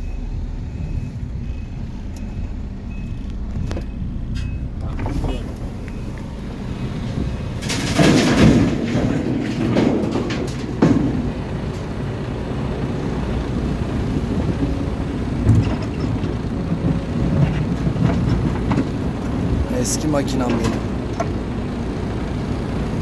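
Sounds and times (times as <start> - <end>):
excavator diesel engine running: 0.0 - 23.0
earth and rock thudding: 7.5 - 12.0.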